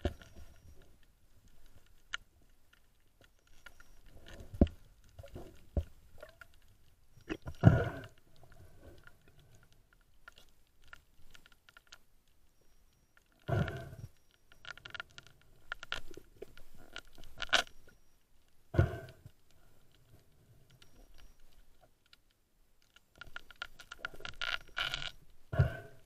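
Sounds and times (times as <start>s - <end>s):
underwater clicks and knocks: 3.2s - 6.6s.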